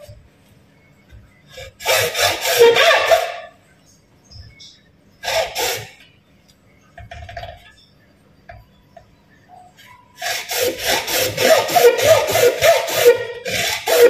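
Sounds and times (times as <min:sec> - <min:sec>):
hand saw strokes squealing: 0:01.5 - 0:03.5, 0:05.2 - 0:06.0, 0:10.2 - 0:14.0.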